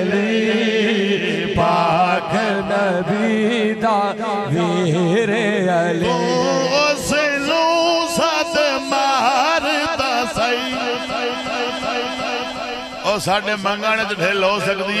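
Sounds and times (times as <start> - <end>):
man singing devotional refrain: 0.0 - 15.0.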